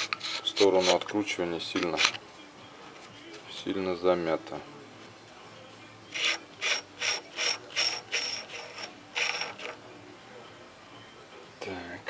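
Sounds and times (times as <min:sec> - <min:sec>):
ratchet wrench ratcheting: 0:06.1 - 0:09.8.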